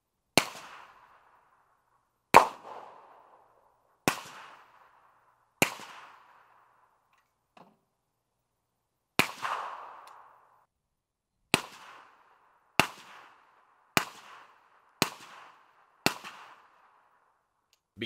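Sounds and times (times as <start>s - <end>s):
suppressed rifle shots: 0.4s - 1.3s, 2.3s - 6.8s, 9.2s - 10.5s, 11.5s - 17.0s.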